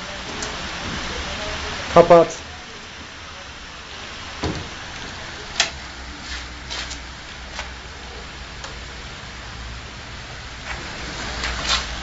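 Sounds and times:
train door shutting with thump: 0:04.4 - 0:04.8.

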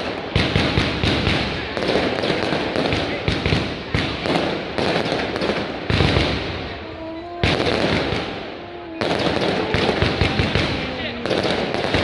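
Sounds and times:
fireworks bangs: 0:00.0 - 0:12.0
fireworks crackling: 0:00.0 - 0:12.0.

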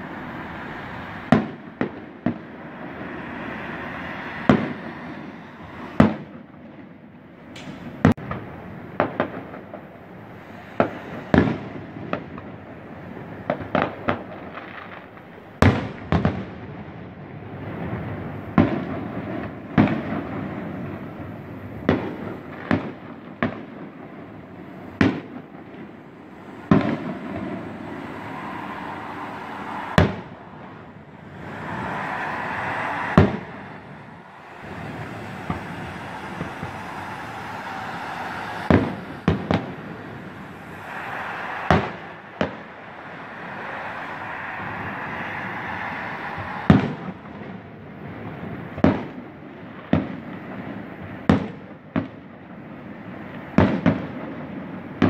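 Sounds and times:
distant fireworks bangs: 0:00.0 - 0:55.0
continuous rumbling: 0:23.9 - 0:48.8.

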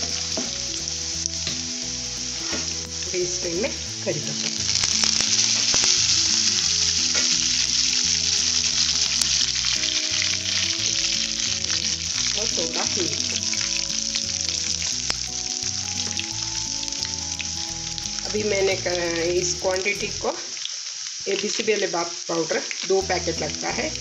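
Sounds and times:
light background tune: 0:00.0 - 0:20.2, 0:23.0 - 0:24.0
hot oil sizzling: 0:00.0 - 0:24.0
small crackles: 0:04.2 - 0:18.4, 0:19.8 - 0:23.0.

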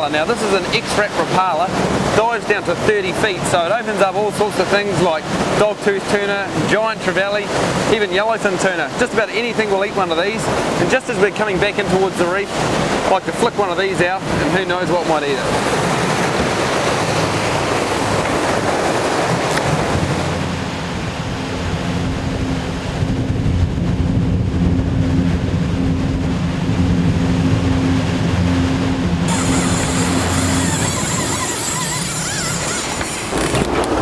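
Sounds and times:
boat engine droning: 0:00.0 - 0:34.0
water rushing past hull: 0:00.0 - 0:34.0
wind buffeting microphone: 0:10.0 - 0:34.0.

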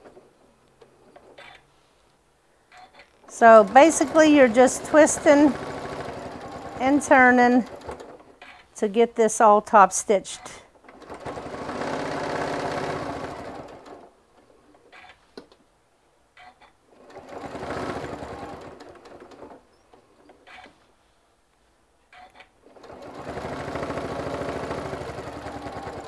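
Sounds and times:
electric sewing machine stitching: 0:03.3 - 0:08.6, 0:10.8 - 0:14.1, 0:16.9 - 0:20.8, 0:22.6 - 0:26.0.

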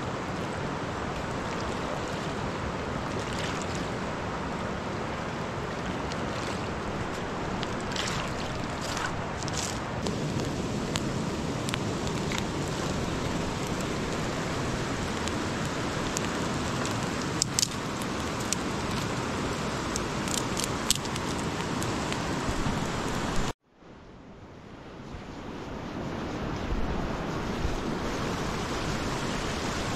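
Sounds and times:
river water rushing: 0:00.0 - 0:23.6.

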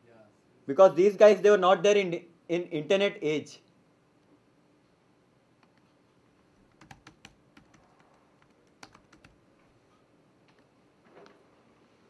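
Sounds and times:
faint typing on a keyboard: 0:05.6 - 0:11.4.

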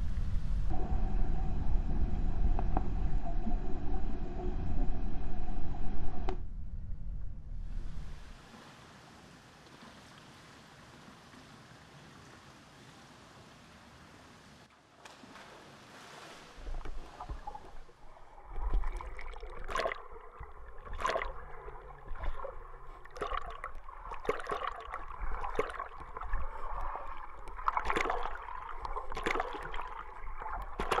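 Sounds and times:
low rumble: 0:00.0 - 0:08.4
water splashing and sloshing: 0:08.0 - 0:31.0.

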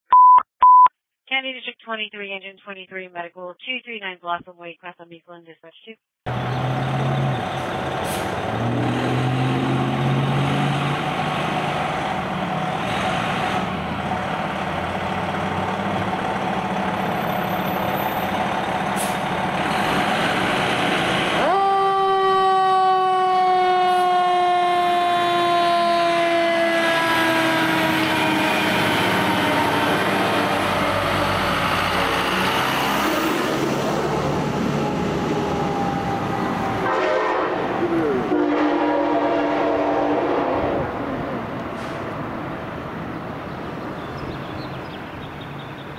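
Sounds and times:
fire engine running: 0:06.3 - 0:44.0
siren wailing: 0:21.4 - 0:33.2, 0:34.0 - 0:41.2.

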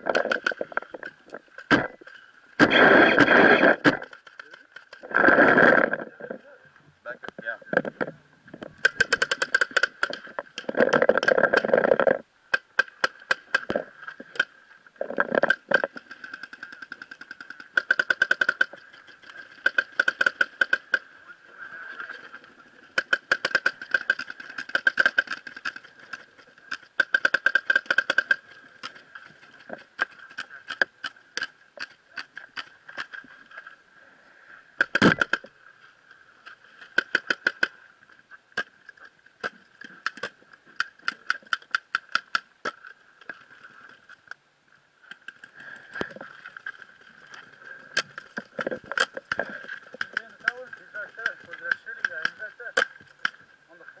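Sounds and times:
paintball markers firing: 0:08.8 - 0:10.2, 0:15.5 - 0:18.7, 0:19.6 - 0:21.0, 0:23.0 - 0:28.9, 0:50.0 - 0:53.4.

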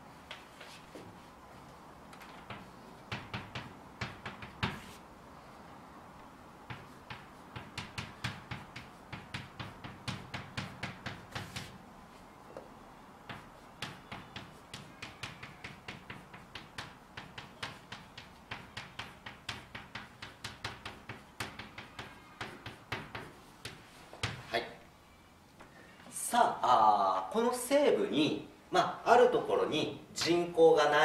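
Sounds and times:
chalk tapping on blackboard: 0:02.2 - 0:05.0, 0:06.6 - 0:11.8, 0:13.2 - 0:24.5.

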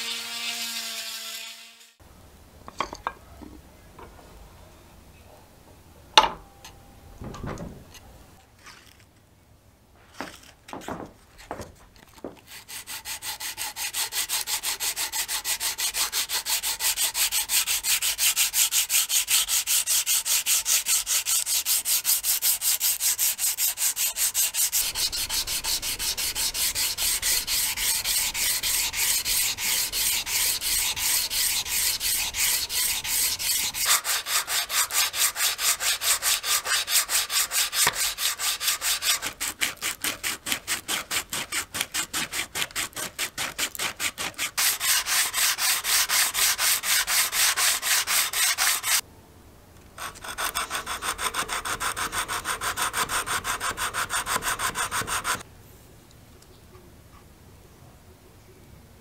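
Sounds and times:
hand sanding wood: 0:12.5 - 0:49.0, 0:50.0 - 0:55.4.

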